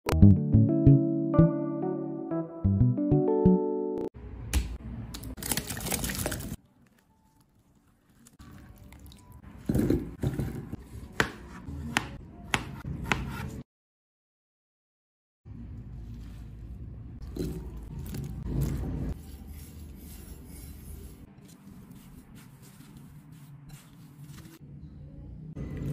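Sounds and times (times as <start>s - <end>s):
water sloshing in a bowl: 5.4s - 10.6s
knife cutting on plastic board: 11.0s - 13.6s.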